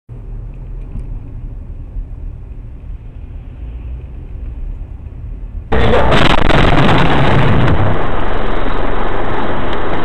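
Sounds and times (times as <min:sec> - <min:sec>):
car engine and road rumble: 0:00.1 - 0:10.0
sudden loud burst of noise: 0:05.7 - 0:10.0.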